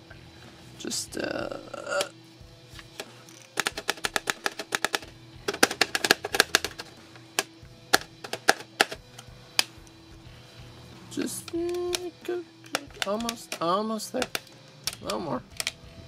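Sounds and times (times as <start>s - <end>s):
screwdriver tapping plastic wrap: 3.6s - 6.9s.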